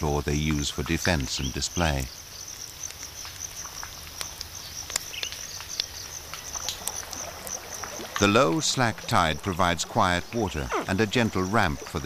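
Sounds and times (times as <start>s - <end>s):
small clicks and ticks: 0.4s - 9.4s
high insect buzz: 2.0s - 12.0s.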